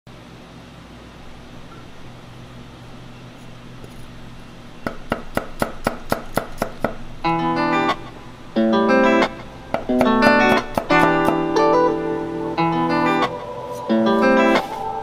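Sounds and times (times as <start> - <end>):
cleaver chopping on wooden block: 4.8 - 7.0
guitar music: 7.0 - 15.0.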